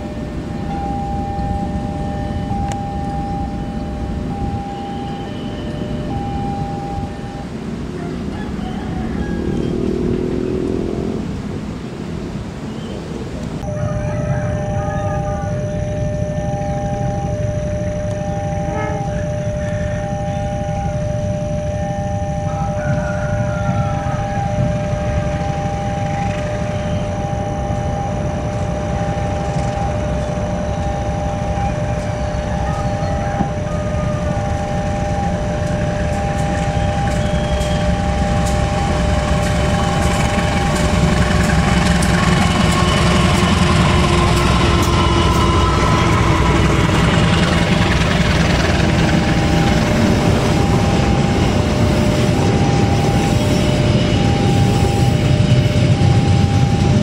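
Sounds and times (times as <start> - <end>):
high-pitched hum: 0.0 - 11.6, 13.6 - 57.0
diesel locomotive engine rumble: 0.0 - 57.0
wheels clicking over rail joints: 28.5 - 53.9.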